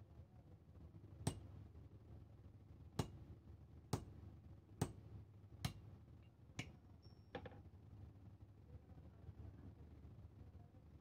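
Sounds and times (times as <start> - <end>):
hammer striking iron on anvil: 1.3 - 1.5, 3.0 - 3.2, 3.9 - 4.2, 5.6 - 5.8.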